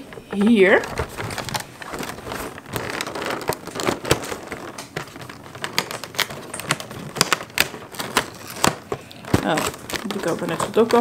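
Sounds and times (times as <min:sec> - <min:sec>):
packaging clicks and rustles: 0:00.0 - 0:11.0.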